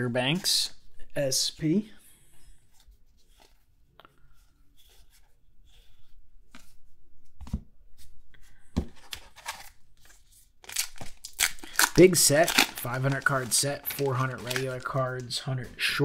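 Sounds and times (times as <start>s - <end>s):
pack rustling: 10.7s - 15.4s.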